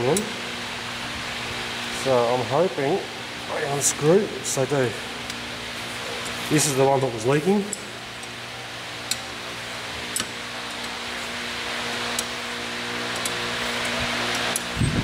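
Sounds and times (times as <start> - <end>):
steady mechanical hum: 0.0 - 15.0
spanner metallic clicks: 7.6 - 8.4, 9.0 - 9.3, 10.1 - 11.4, 12.1 - 12.4, 13.1 - 15.0.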